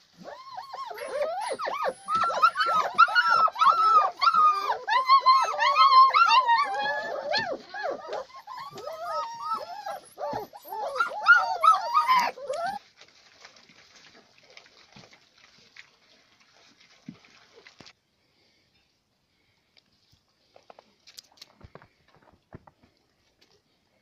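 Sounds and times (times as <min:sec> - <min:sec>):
puppies whining and yelping: 0:00.0 - 0:12.8.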